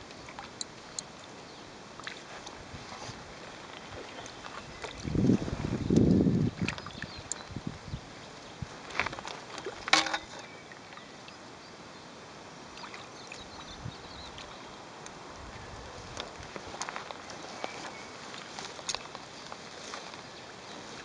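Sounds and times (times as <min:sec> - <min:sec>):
river water lapping against rocks: 0:00.0 - 0:11.6, 0:12.3 - 0:15.4, 0:16.0 - 0:21.0
faint steady hiss: 0:00.0 - 0:21.0
short water splashes: 0:02.0 - 0:07.4, 0:08.8 - 0:11.1, 0:12.7 - 0:14.7.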